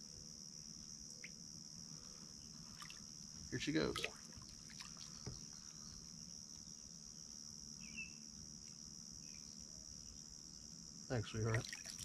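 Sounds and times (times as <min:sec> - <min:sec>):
insects chirping: 0:00.0 - 0:12.0
bird chirp: 0:07.8 - 0:08.3.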